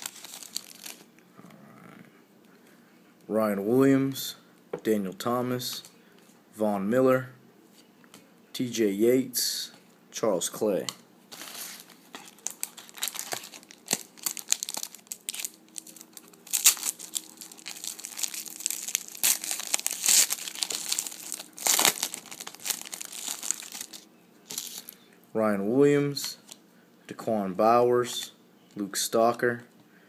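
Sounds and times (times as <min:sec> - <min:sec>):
foil wrapper crinkling and tearing: 0:00.0 - 0:01.1, 0:11.3 - 0:25.0.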